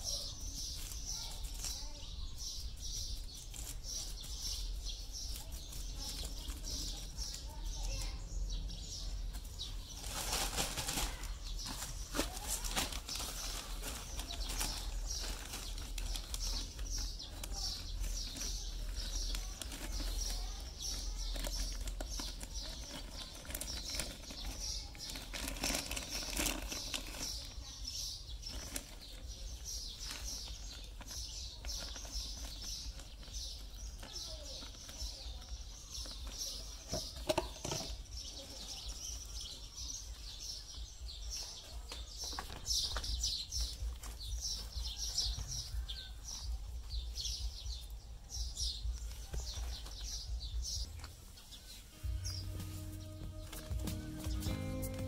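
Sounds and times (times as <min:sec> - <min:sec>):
plastic bag crinkling and rustling: 0:09.3 - 0:39.5.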